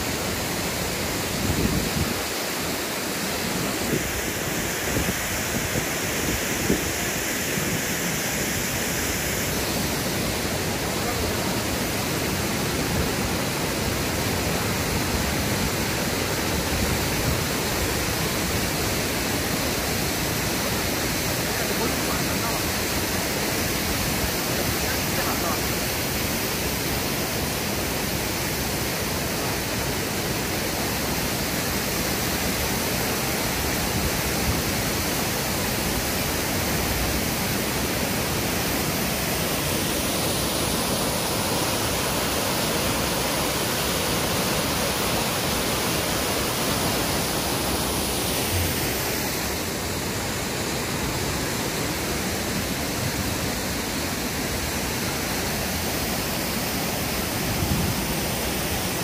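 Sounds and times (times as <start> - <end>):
waterfall pouring and splashing: 0.0 - 59.0.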